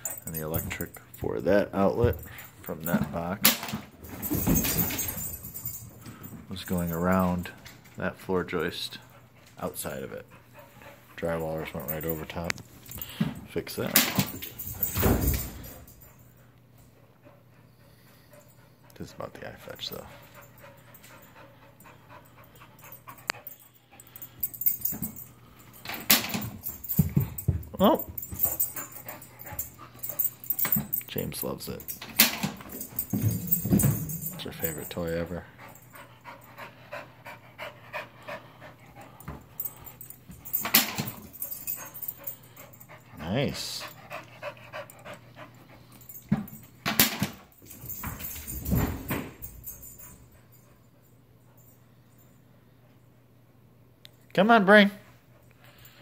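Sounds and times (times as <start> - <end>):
dog panting: 8.2 - 13.0, 15.7 - 25.8, 28.2 - 31.1, 32.7 - 46.3.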